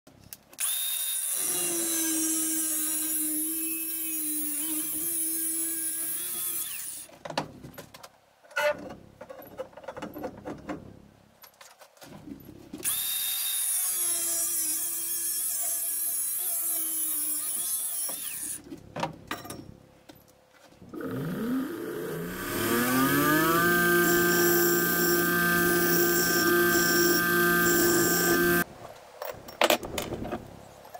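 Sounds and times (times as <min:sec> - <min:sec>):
angle grinder cutting steel: 0:00.6 - 0:07.1, 0:12.8 - 0:18.6, 0:21.0 - 0:28.7
knocks and clatter of handling: 0:08.8 - 0:12.8.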